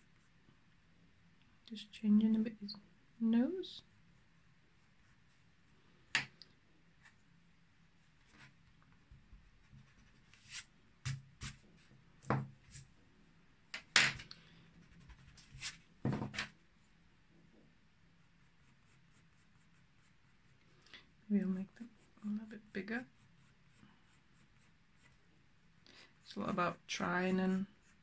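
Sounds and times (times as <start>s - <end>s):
pencil scratching on paper: 9.6s - 11.6s, 14.8s - 15.8s, 18.2s - 20.6s, 21.8s - 25.2s, 27.2s - 28.0s.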